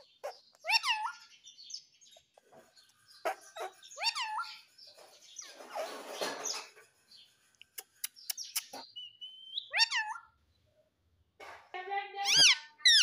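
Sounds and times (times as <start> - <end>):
parakeet squawking: 0.0 - 1.3, 3.2 - 4.7, 8.5 - 10.4, 12.2 - 13.0.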